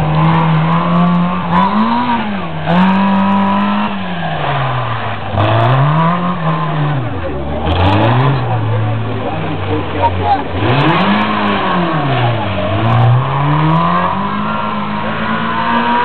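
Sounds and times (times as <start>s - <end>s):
rally car engine revving: 0.0s - 16.0s.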